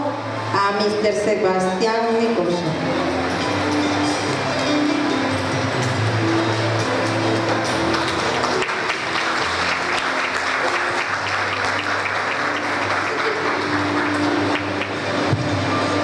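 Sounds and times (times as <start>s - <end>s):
audience applauding: 5.8s - 16.0s.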